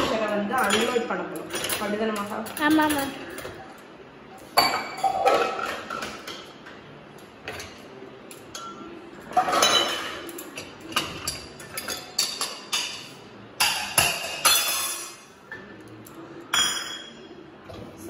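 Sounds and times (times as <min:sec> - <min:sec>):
metal pots clinking and clattering: 0:04.6 - 0:06.5, 0:08.5 - 0:15.3.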